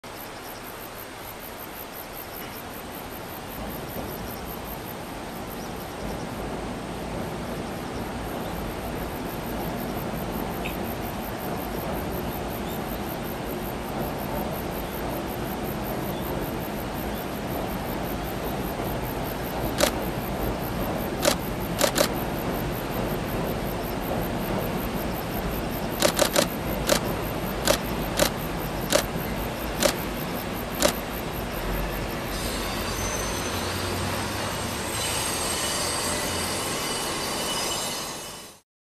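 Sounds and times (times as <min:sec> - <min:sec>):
train rumbling over bridge: 0:00.1 - 0:38.6
wheels clacking over rail joints: 0:08.5 - 0:38.4.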